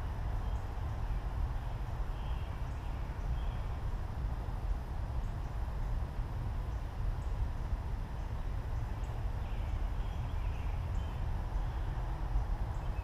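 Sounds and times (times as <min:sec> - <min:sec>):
faint distant bird chirps: 0:00.0 - 0:03.8, 0:06.6 - 0:13.0.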